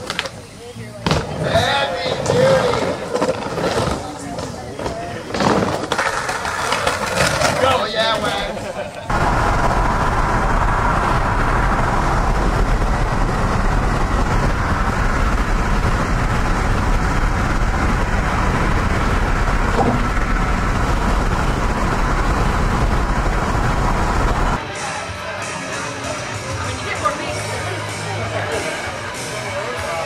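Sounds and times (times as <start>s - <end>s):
car road noise at highway speed: 8.3s - 24.6s.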